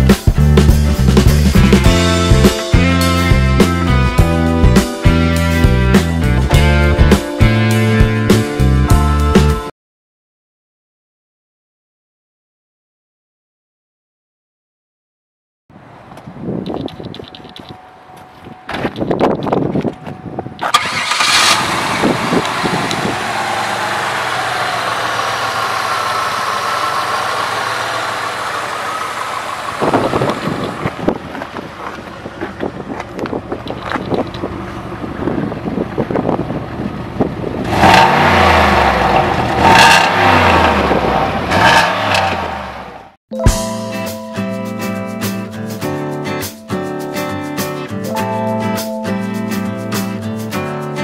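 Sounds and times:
engine revving: 20.6 - 31.3, 36.8 - 43.2
car engine starting and idling: 20.6 - 43.2.

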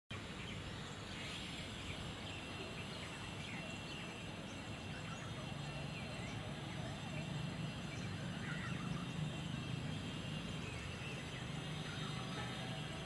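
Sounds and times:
small birds chirping: 0.1 - 13.0
steady background noise: 0.1 - 13.0.

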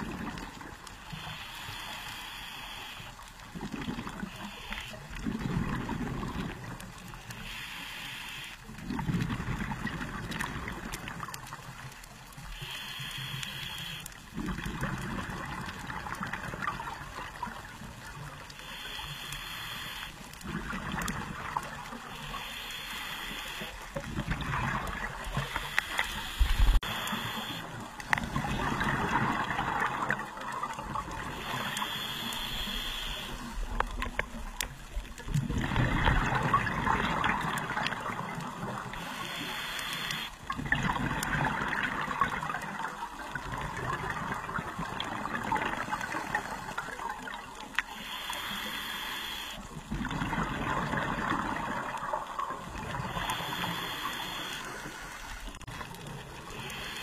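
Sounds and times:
exhaled bubbles burbling: 0.0 - 0.9, 3.5 - 7.1, 8.8 - 11.8, 14.3 - 18.4, 20.4 - 22.2, 23.8 - 32.0, 33.4 - 39.1, 40.0 - 47.7, 49.6 - 56.8
regulator inhalation hiss: 1.1 - 3.2, 7.3 - 8.6, 12.5 - 14.0, 18.6 - 20.2, 22.1 - 23.9, 25.4 - 27.7, 31.3 - 33.6, 39.0 - 40.4, 47.9 - 49.6, 53.1 - 55.3, 56.5 - 57.0.

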